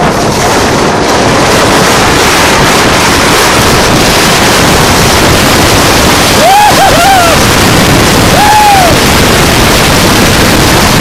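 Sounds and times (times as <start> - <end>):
sled sliding over snow: 0.0 - 11.0
wind buffeting microphone: 0.0 - 11.0.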